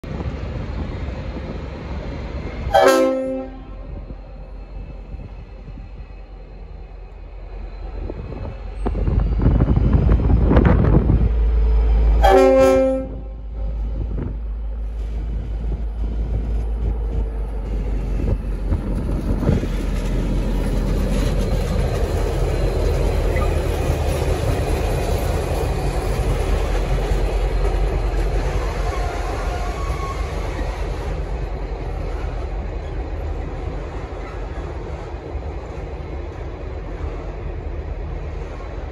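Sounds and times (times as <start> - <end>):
locomotive air horn: 2.7 - 4.0, 12.2 - 13.8.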